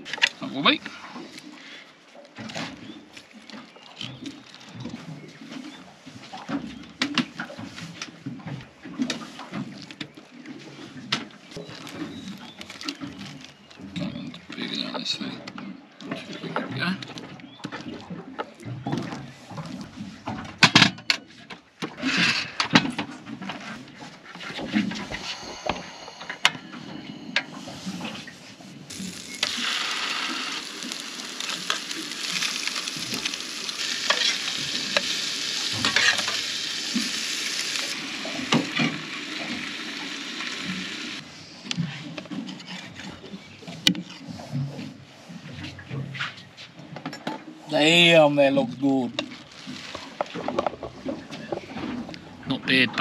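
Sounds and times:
fish fillets sizzling in a pan: 28.9s - 41.2s.

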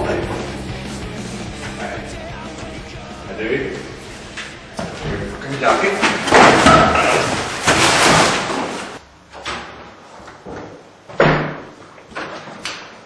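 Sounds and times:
rustling and scuffling: 3.8s - 9.0s.

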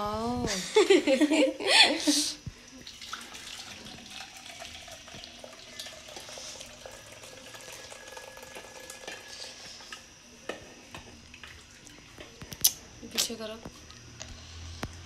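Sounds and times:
tea pouring into a cup: 2.7s - 10.2s, 11.0s - 12.4s.

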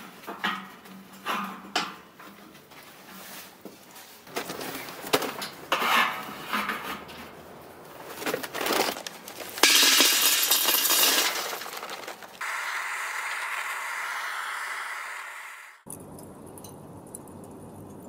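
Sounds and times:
charcoal rattling into metal drum: 3.2s - 7.3s, 7.9s - 12.4s
steel plates clinking: 9.5s - 12.4s.

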